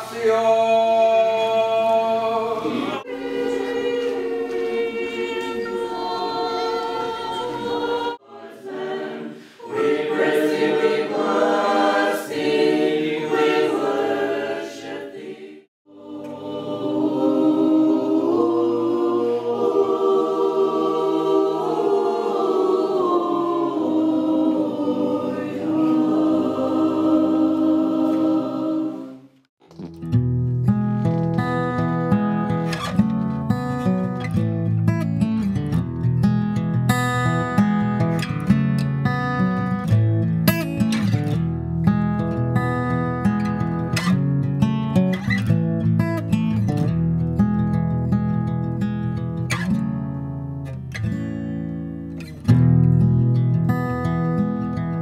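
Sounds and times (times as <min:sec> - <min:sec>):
mixed choir chanting a cappella: 0:00.0 - 0:29.3.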